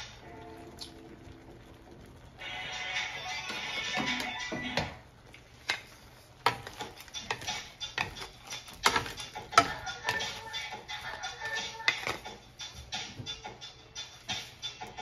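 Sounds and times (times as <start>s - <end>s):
wooden spatula scraping wok: 3.0s - 13.1s.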